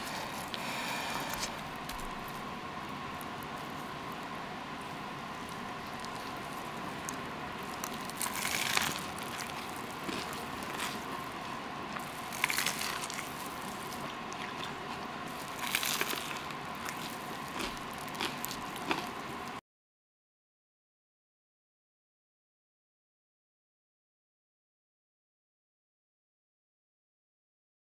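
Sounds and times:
light crackles: 0:00.0 - 0:19.6
steady background hiss: 0:00.0 - 0:19.6
toasted bread squishy crunches: 0:00.0 - 0:19.6.

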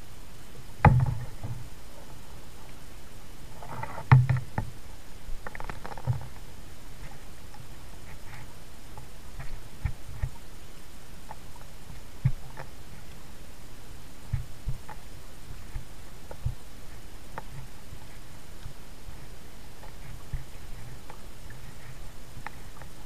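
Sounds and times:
knocks and clicks on kayak hull: 0:00.8 - 0:01.6, 0:03.8 - 0:04.8, 0:12.2 - 0:12.7, 0:15.7 - 0:16.6.

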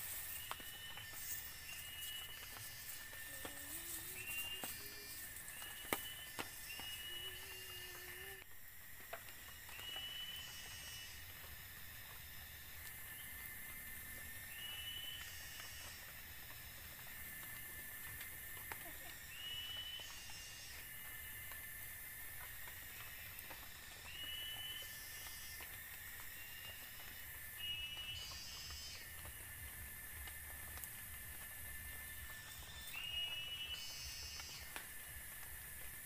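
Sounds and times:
high hiss: 0:00.0 - 0:16.0
insects buzzing: 0:00.0 - 0:36.0.

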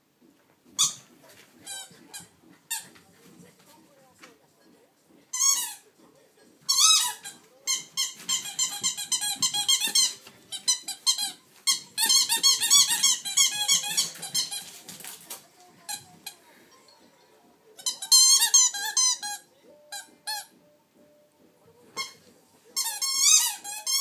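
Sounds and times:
squeaky dog toy squeaking: 0:00.8 - 0:02.9, 0:05.3 - 0:05.8, 0:06.7 - 0:14.8, 0:17.8 - 0:20.6, 0:22.0 - 0:24.0.

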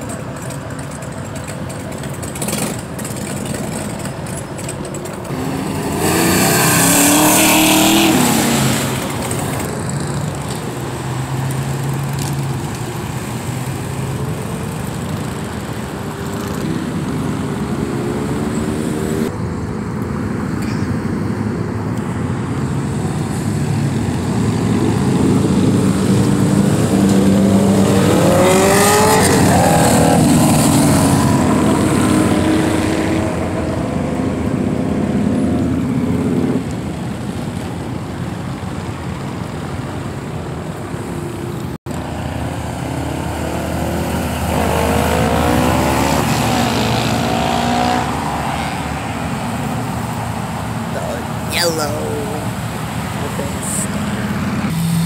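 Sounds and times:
cars driving past: 0:00.0 - 0:55.0
engine revving while accelerating: 0:05.3 - 0:12.8, 0:16.3 - 0:19.3, 0:23.4 - 0:36.8, 0:42.0 - 0:50.0, 0:53.4 - 0:55.0.

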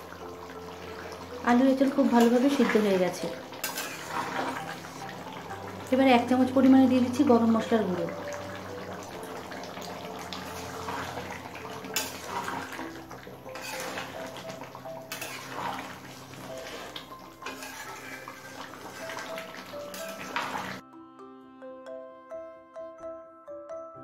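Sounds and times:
curry bubbling: 0:00.0 - 0:20.8
spoon stirring gravy: 0:02.2 - 0:05.9, 0:08.0 - 0:20.8.

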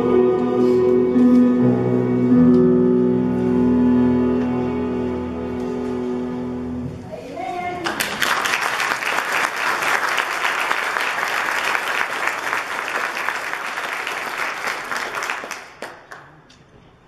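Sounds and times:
congregation clapping: 0:07.8 - 0:16.5.

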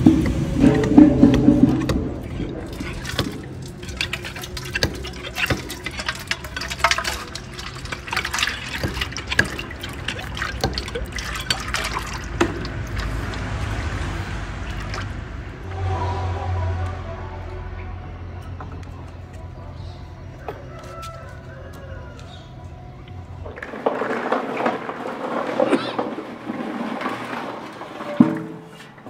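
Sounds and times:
oil pouring into metal pot: 0:00.2 - 0:14.0, 0:14.6 - 0:15.2
splashes and clicks: 0:00.2 - 0:15.2.

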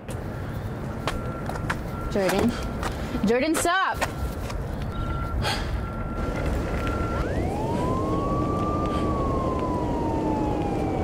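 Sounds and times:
siren wailing: 0:04.2 - 0:11.0
steady high tone: 0:04.9 - 0:11.0.

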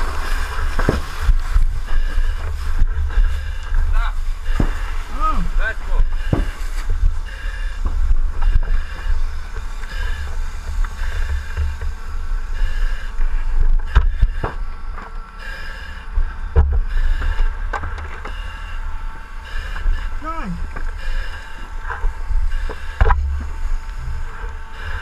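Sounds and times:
whistling hiss of breathing: 0:00.0 - 0:25.0
low rumble: 0:16.0 - 0:25.0.

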